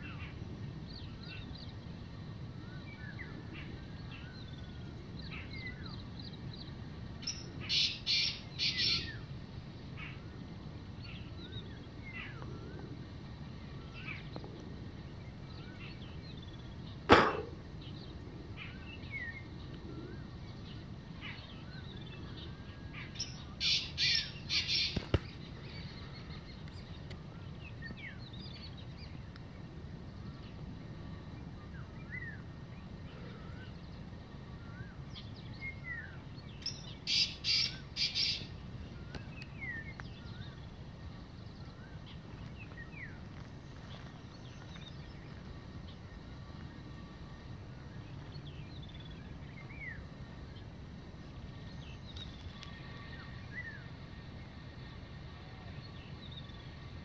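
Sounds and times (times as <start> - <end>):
small birds chirping: 0.0 - 57.0
francolin calling: 7.2 - 9.3, 15.5 - 28.7, 31.6 - 43.2
sharp knock: 17.1 - 17.5.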